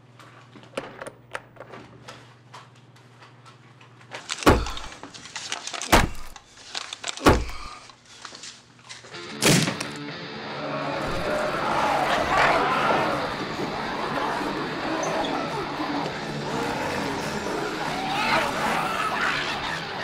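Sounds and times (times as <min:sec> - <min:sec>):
heavy thuds against a door: 0:04.5 - 0:04.9.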